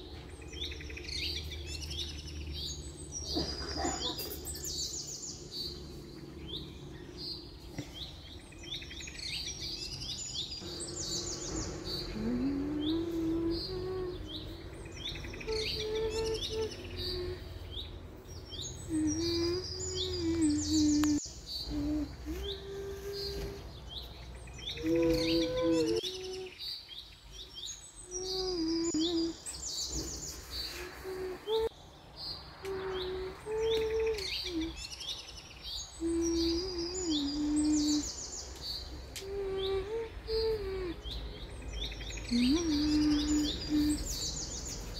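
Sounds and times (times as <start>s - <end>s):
small birds chirping: 0.0s - 44.9s
low sustained tone: 10.6s - 23.8s, 24.6s - 26.6s.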